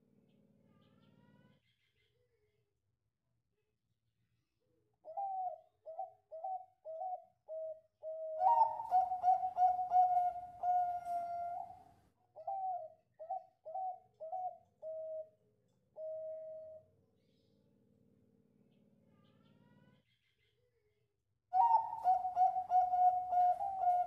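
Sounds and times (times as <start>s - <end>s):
dove cooing: 5.0s - 15.4s, 21.6s - 24.0s.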